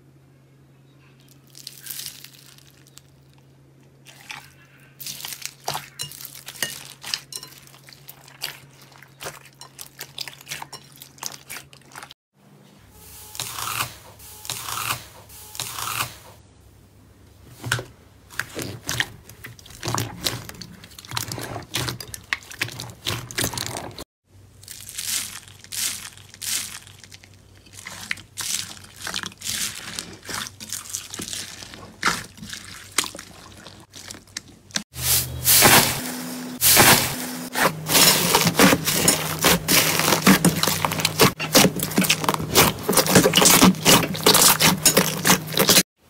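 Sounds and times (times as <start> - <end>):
slime crackling and popping: 1.5 - 3.4.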